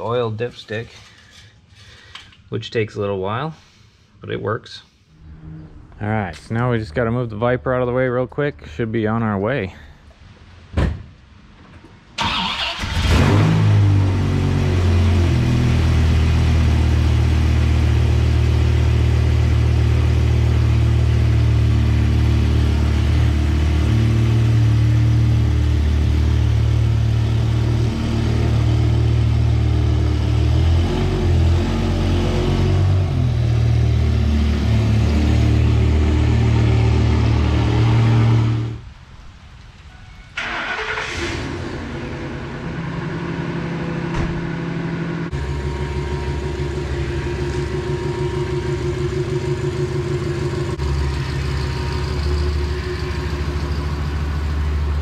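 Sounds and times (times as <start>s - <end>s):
thump: 10.7s - 11.1s, 44.1s - 44.6s
car engine starting and idling: 12.1s - 38.8s, 40.4s - 55.0s.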